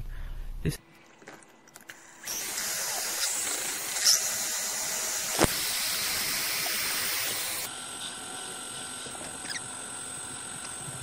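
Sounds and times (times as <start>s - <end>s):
lathe motor whirring: 1.9s - 11.0s.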